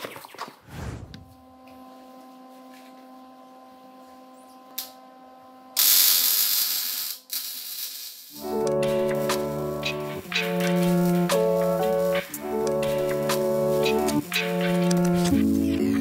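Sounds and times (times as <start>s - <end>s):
music: 1.3s - 7.3s, 8.3s - 16.0s.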